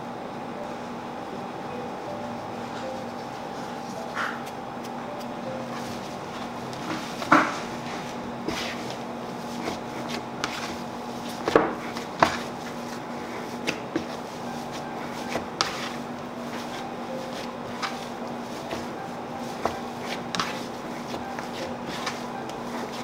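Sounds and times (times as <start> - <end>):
dough kneading thumps on board: 6.8 - 7.7, 8.4 - 23.0.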